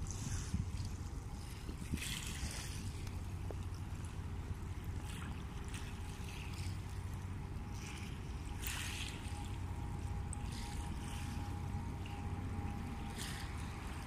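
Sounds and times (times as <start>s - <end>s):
small waves lapping on gravel: 0.0s - 9.6s.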